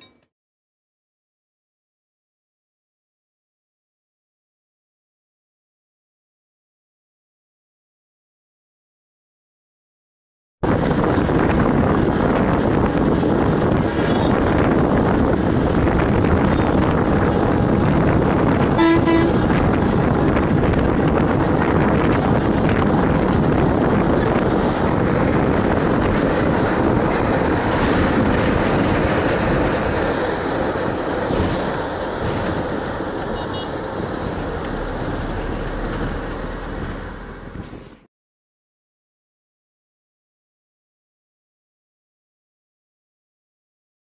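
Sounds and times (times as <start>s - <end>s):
road and wind noise inside bus: 10.6s - 38.1s
short horn toot: 18.8s - 19.4s.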